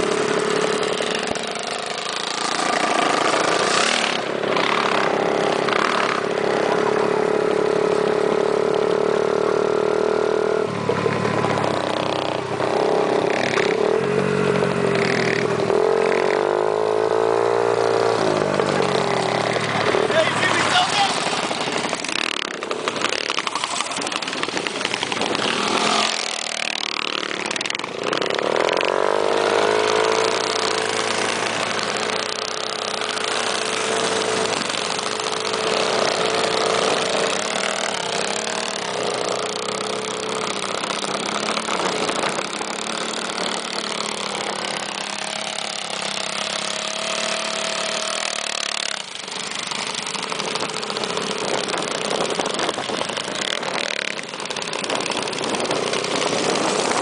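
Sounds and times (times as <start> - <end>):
minibike engines running: 0.0 - 57.0
steady rush of noise: 10.6 - 57.0.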